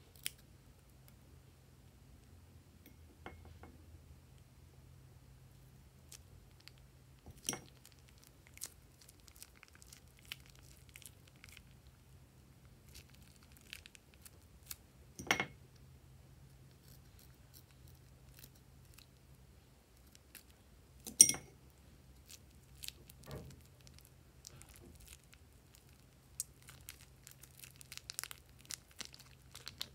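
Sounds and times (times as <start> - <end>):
plastic piping bag crinkling: 6.1 - 14.8, 22.1 - 29.9.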